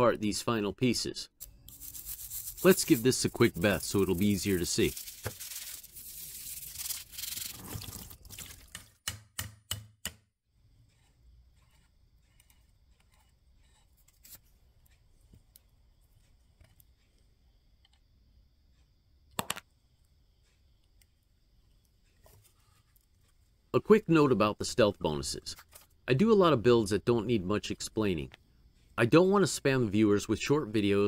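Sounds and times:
plastic brush scrubbing metal: 1.7 - 8.8, 10.8 - 14.4.

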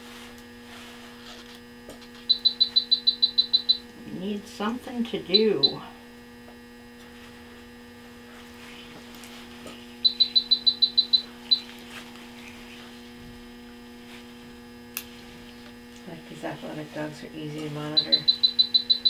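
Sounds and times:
electrical mains hum: 0.0 - 19.0
high electronic beeps: 2.2 - 3.8, 5.3 - 5.8, 10.0 - 11.6, 17.9 - 19.0.

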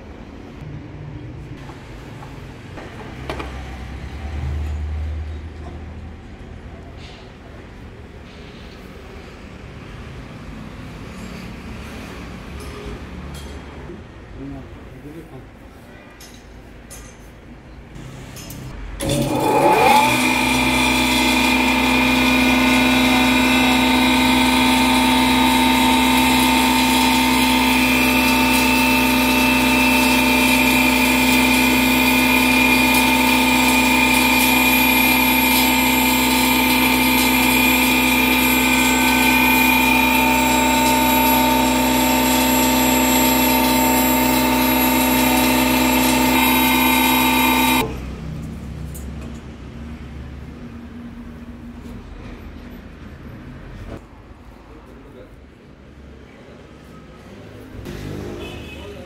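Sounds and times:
electric power tool running: 19.0 - 48.0.

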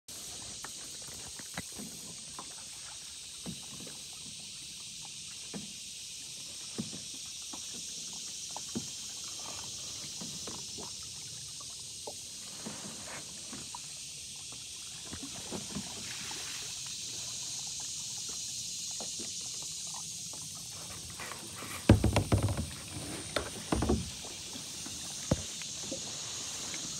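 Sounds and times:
high-pitched hiss: 0.1 - 26.9
paddle splashes and drips: 0.1 - 26.9
paddle knocks: 21.1 - 24.6, 25.2 - 26.0.

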